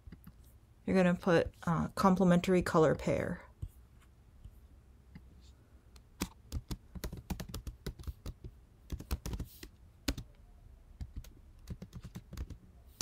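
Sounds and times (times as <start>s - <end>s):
typing on computer keyboard: 6.2s - 10.3s, 11.0s - 13.0s.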